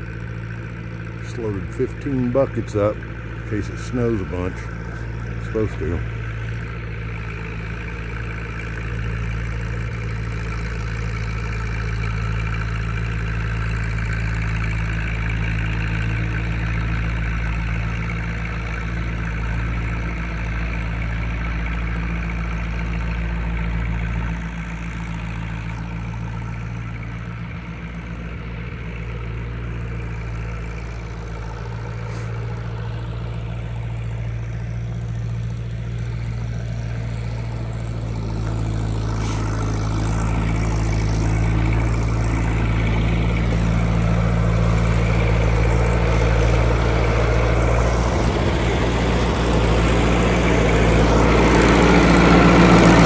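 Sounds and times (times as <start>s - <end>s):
tractor engine idling: 0.0s - 53.0s.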